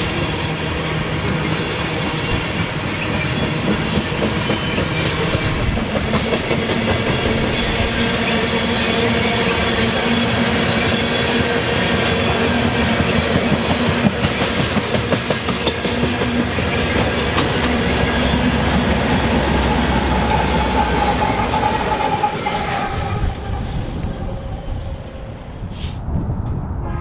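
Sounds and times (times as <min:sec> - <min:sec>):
train wheels clattering on rails: 0:00.0 - 0:24.5.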